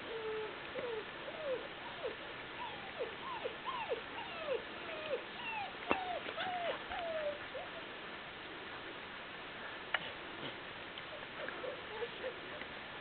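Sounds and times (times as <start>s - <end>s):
puppies whining and yelping: 0.0s - 7.9s, 11.1s - 12.7s.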